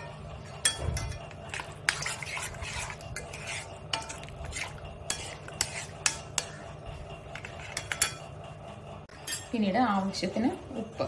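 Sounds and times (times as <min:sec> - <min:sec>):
spoon clinking and scraping pan: 0:00.0 - 0:06.7, 0:07.3 - 0:08.3
spoon stirring thick gravy: 0:00.0 - 0:08.4.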